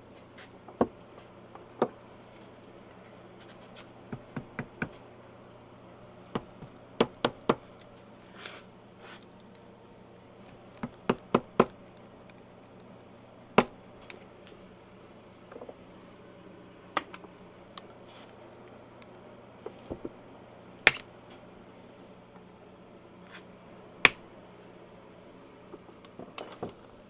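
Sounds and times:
hammer striking steel: 0:20.9 - 0:21.2.

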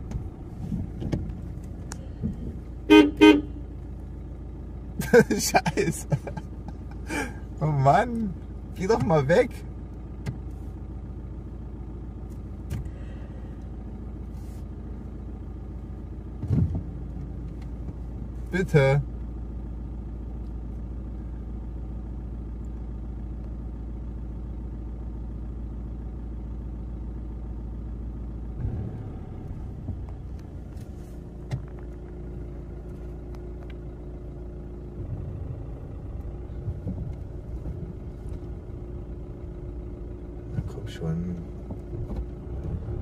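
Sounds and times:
car rolling on dirt track: 0:00.0 - 0:02.8, 0:03.7 - 0:14.2, 0:15.0 - 0:43.0
car engine idling: 0:00.0 - 0:43.0.

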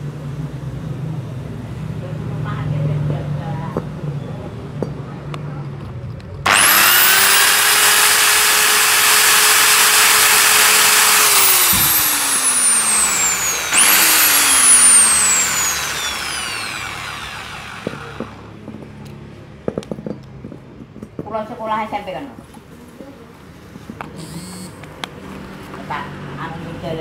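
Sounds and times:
electric rotary grinder whining: 0:06.5 - 0:18.6.

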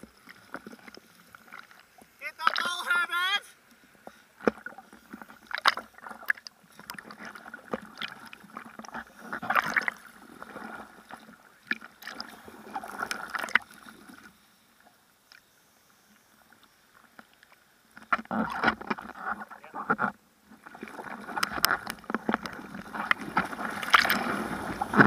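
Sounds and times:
water splashing against a board: 0:05.4 - 0:13.7, 0:18.0 - 0:25.0.

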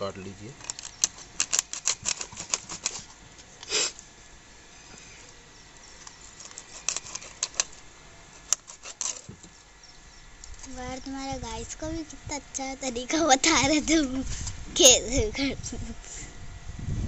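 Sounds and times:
blade scraping rasp: 0:08.4 - 0:09.3.

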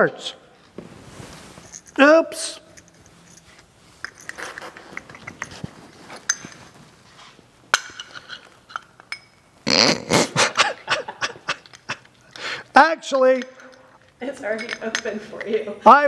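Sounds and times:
metal parts rattling and scraping: 0:01.5 - 0:02.0, 0:02.8 - 0:09.2
small metal parts clicking and clinking: 0:01.6 - 0:02.0, 0:02.6 - 0:06.6, 0:07.7 - 0:09.4, 0:13.3 - 0:15.6.

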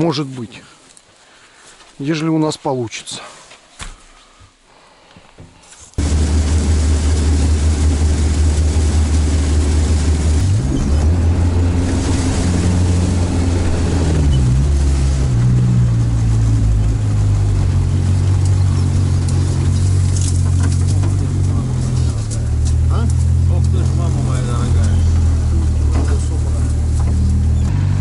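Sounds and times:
water and brush hissing against hull: 0:06.0 - 0:22.5
vehicle engine low drone: 0:06.0 - 0:28.0.

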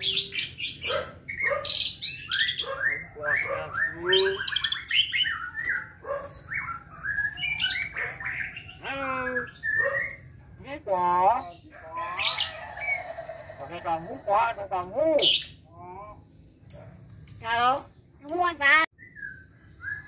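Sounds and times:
myna whistling and squawking: 0:00.0 - 0:10.4.

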